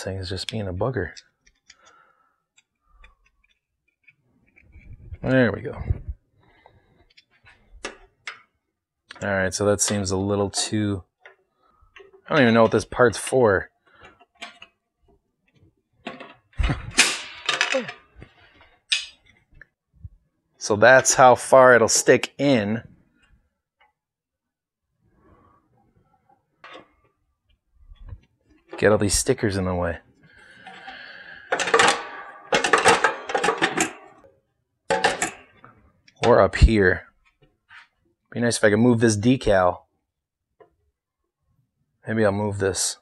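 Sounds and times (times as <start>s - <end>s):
metal box cover clattering: 16.1s - 17.9s, 31.5s - 34.2s, 34.9s - 35.5s.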